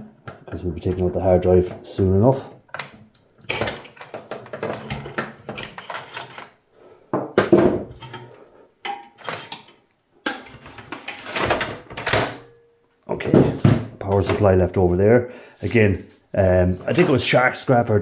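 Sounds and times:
metal clatter and rattles: 3.4 - 6.6, 7.9 - 12.4.

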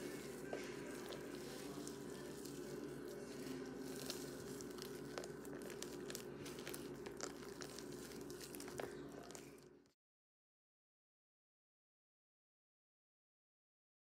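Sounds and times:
slime clicking and crackling: 0.0 - 9.9
steady low hum: 0.0 - 10.0.

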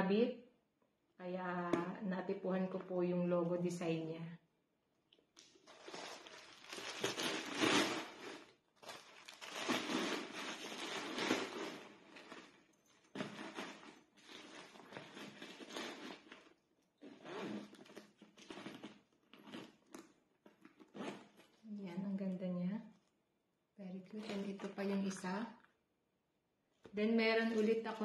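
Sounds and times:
packaging crinkling and rustling: 5.4 - 16.6.

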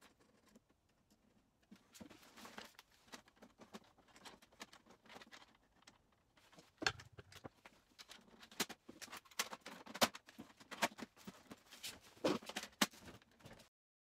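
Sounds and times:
plastic printer parts clicking: 2.6 - 11.6.

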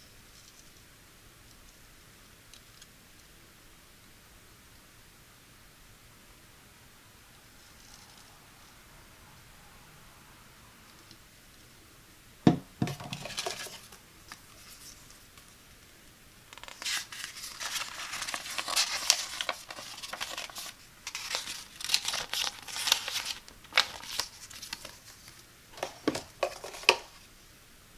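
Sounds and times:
metal filter knocking on table: 12.5 - 13.2
paper leaflet rustling: 12.8 - 15.5, 16.6 - 27.2.

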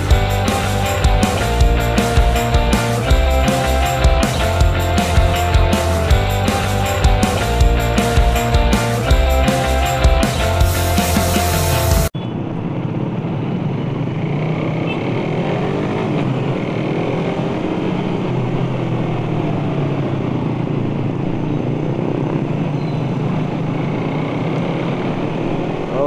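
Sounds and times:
rock music: 0.0 - 12.1
motorcycle engine revving: 0.0 - 26.0
road and wind noise: 0.0 - 26.0.

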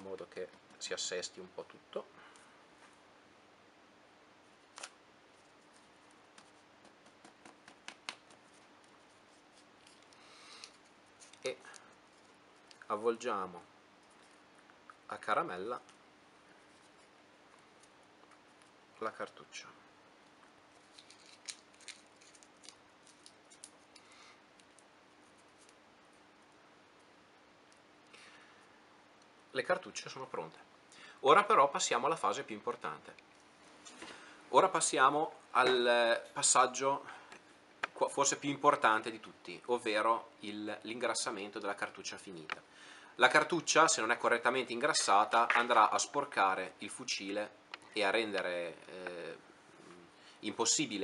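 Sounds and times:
faint steady hum: 0.0 - 51.0
paper crinkling: 20.7 - 24.0.

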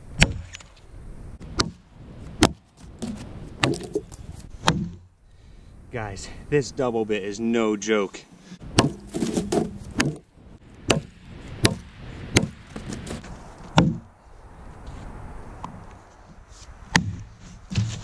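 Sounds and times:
axe chopping into log: 0.2 - 0.6, 1.5 - 1.8, 2.4 - 5.0, 8.7 - 10.3, 10.9 - 14.1, 16.9 - 18.0.

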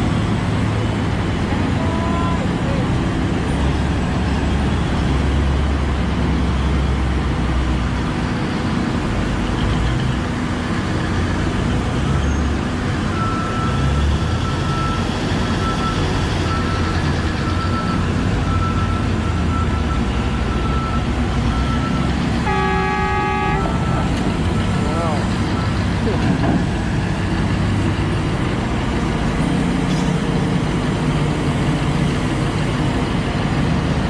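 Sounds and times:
heavy diesel engines rumbling: 0.0 - 34.0
truck reversing alarm beeps: 12.1 - 26.2.

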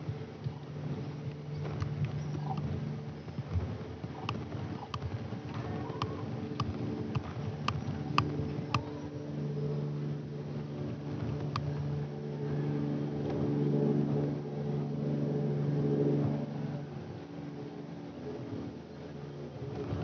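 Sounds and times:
propeller aircraft flying overhead: 0.0 - 20.0.

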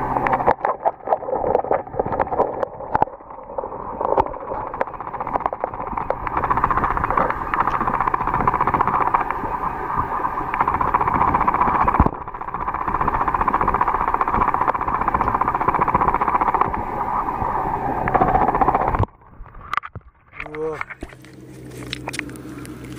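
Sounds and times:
muffled underwater rushing water: 0.0 - 22.9.

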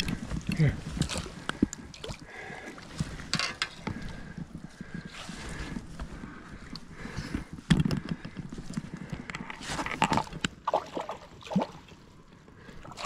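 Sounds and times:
splashing in shallow water: 0.0 - 3.3, 9.6 - 12.1.

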